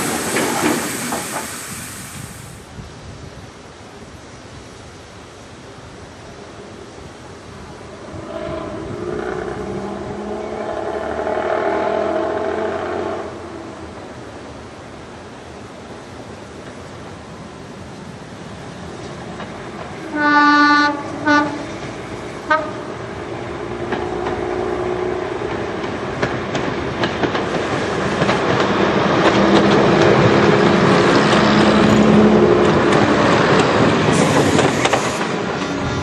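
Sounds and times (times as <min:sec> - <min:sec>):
train engines droning: 0:00.0 - 0:02.6, 0:07.6 - 0:36.0
train wheels clicking over rail joints: 0:00.0 - 0:02.6, 0:18.8 - 0:20.2, 0:21.0 - 0:36.0
train horn blasts: 0:08.0 - 0:13.8, 0:20.0 - 0:21.8, 0:22.4 - 0:23.0.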